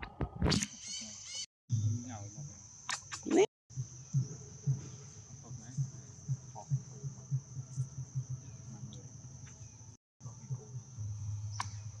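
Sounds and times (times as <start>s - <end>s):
insects droning: 0.8s - 12.0s.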